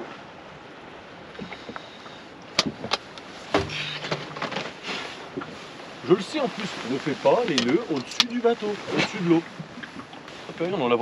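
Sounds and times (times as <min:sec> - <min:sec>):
soft background hiss: 0:03.2 - 0:11.0.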